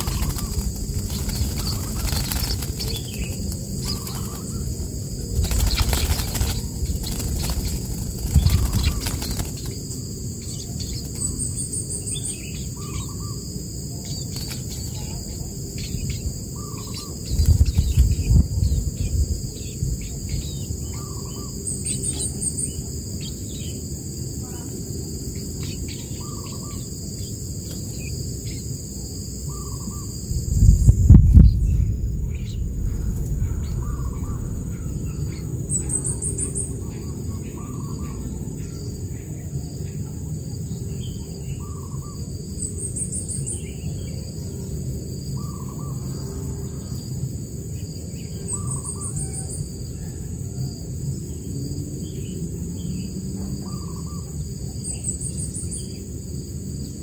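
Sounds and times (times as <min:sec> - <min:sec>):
low rumble: 0:00.0 - 0:10.5, 0:15.3 - 0:20.9, 0:30.1 - 0:38.5
bird wings fluttering: 0:00.0 - 0:11.4, 0:14.1 - 0:15.9, 0:17.2 - 0:19.1
high insect drone: 0:00.0 - 0:57.0.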